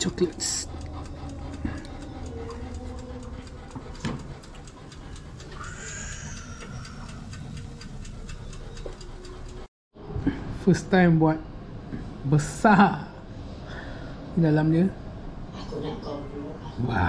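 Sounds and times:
mechanical oven timer ticking: 0.0s - 9.7s.

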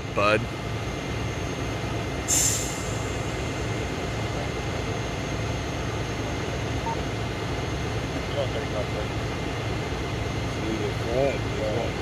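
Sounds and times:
diesel truck engines idling: 0.0s - 12.0s.

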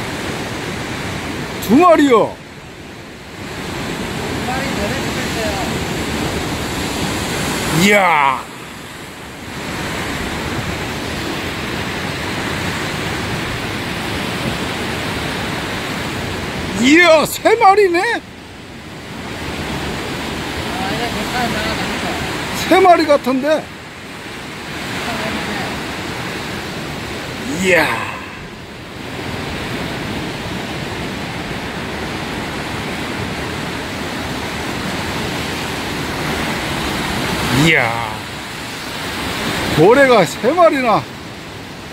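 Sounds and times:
sea surf: 0.0s - 41.9s
wind: 0.0s - 41.9s.

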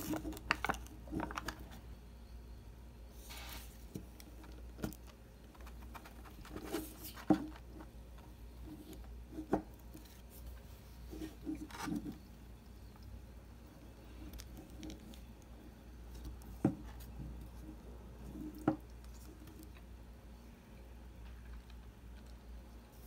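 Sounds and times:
objects tapping and knocking: 0.0s - 1.7s.

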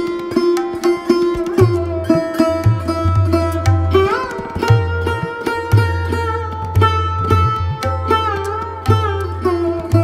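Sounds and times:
plucked string melody: 0.0s - 10.0s.

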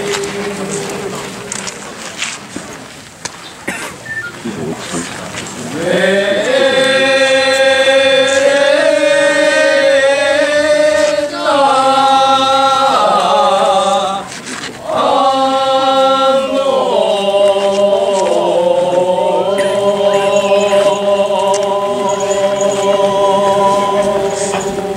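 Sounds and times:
voices chanting together: 0.0s - 2.0s, 5.7s - 24.9s.

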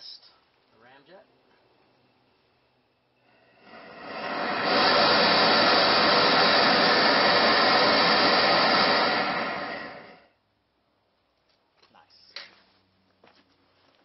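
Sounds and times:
flame jet rushing: 3.2s - 10.4s.

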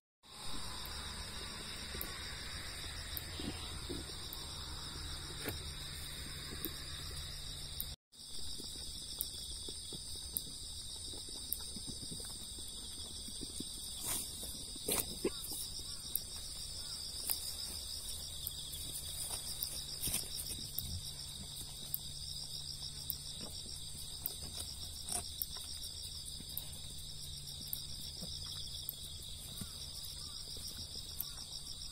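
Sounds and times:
insects chirring: 0.3s - 31.9s.

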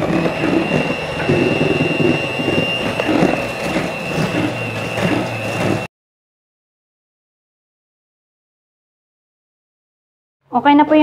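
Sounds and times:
beaters whipping in metal bowl: 0.0s - 5.9s
electric hand mixer whine: 0.0s - 5.9s.

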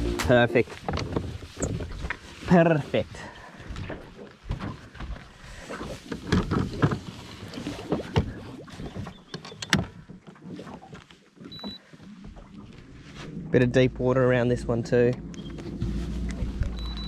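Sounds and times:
short high beep: 16.8s - 17.0s.

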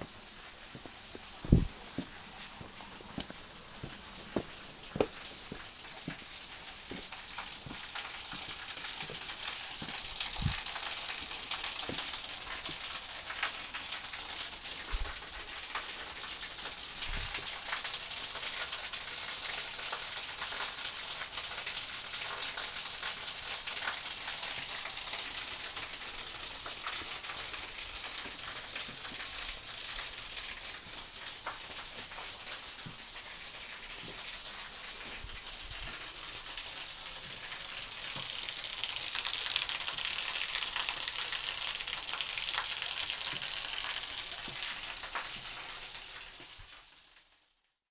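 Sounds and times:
waterfall splashing onto rocks: 0.0s - 47.4s
soft low thumps: 0.8s - 5.1s.

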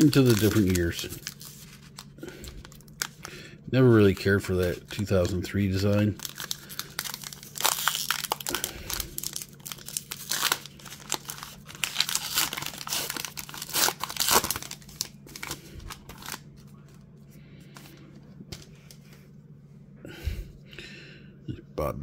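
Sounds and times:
foil wrapper tearing and crinkling: 0.0s - 3.4s, 4.0s - 16.8s.

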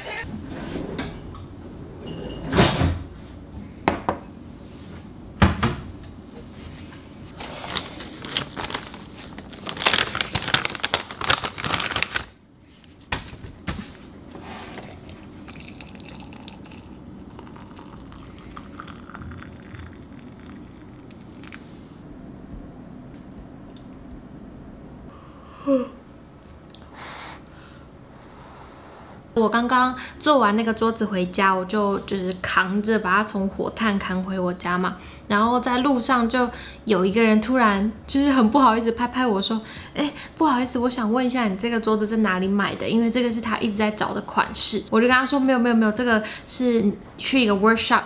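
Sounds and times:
plastic packet crinkling and tearing: 7.7s - 12.4s.

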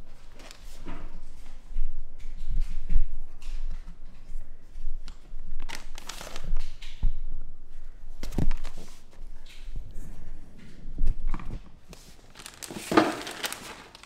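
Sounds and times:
plastic bag rustling: 5.6s - 6.7s, 12.0s - 14.0s.

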